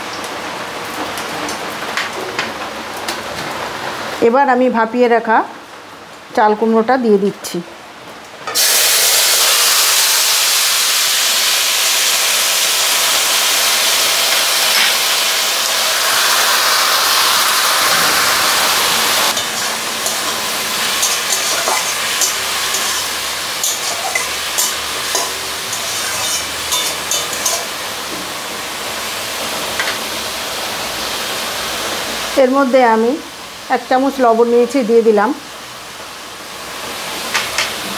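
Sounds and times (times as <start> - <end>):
vegetables sizzling in hot oil: 8.2 - 37.9
spatula scraping and knocking pan: 19.3 - 28.3.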